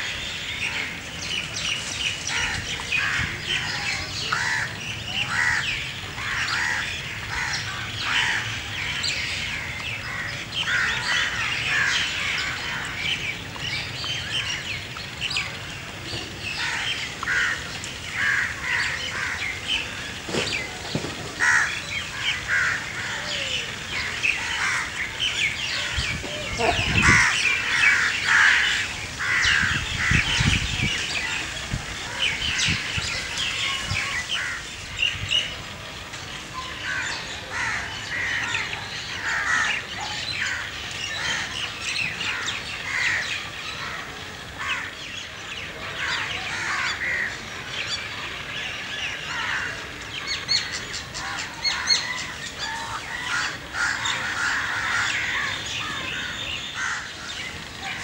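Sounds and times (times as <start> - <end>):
birds chirping: 0.0 - 58.0
crows cawing: 5.3 - 8.6, 16.6 - 20.0, 21.4 - 30.4, 36.8 - 39.8, 51.2 - 57.5.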